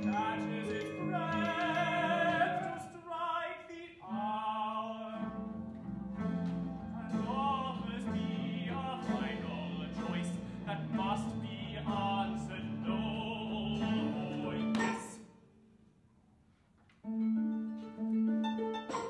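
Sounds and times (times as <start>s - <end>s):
operatic tenor singing: 0.0s - 5.6s, 6.8s - 15.3s.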